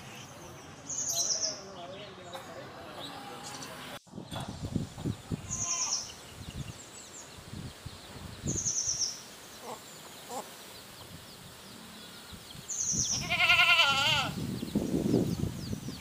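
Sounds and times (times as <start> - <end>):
goat bleating: 5.4 - 6.1, 13.1 - 14.4.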